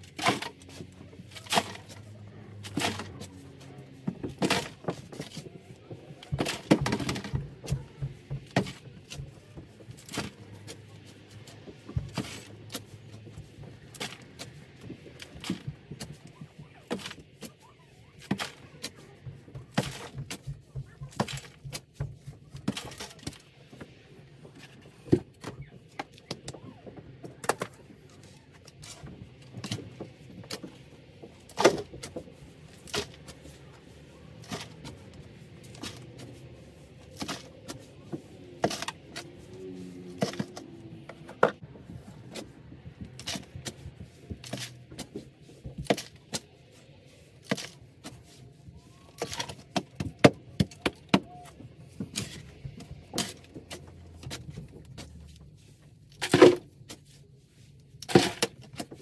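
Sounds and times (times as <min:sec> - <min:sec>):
digging tool striking dirt: 0:00.0 - 0:03.4, 0:34.4 - 0:37.9, 0:38.5 - 0:41.0, 0:56.1 - 0:56.7, 0:58.0 - 0:59.0.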